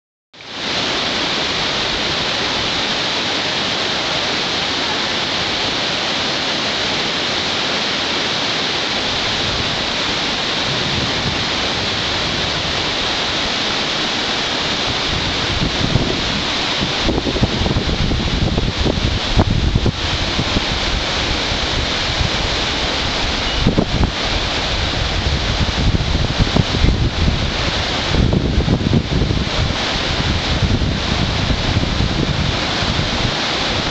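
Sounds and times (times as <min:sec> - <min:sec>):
river rushing: 0:00.4 - 0:33.9
wind buffeting microphone: 0:09.1 - 0:33.9.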